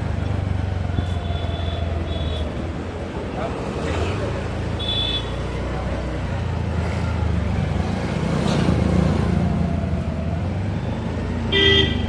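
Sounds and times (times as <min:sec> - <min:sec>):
traffic engine rumble: 0:00.0 - 0:12.0
vehicle horn toot: 0:11.5 - 0:12.0.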